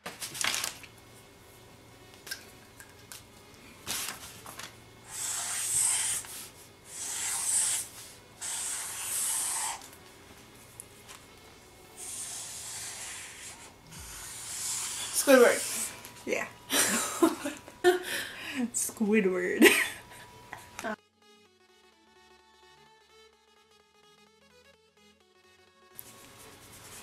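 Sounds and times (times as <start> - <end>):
marker scratching on paper: 5.1 - 9.9, 12.0 - 16.0.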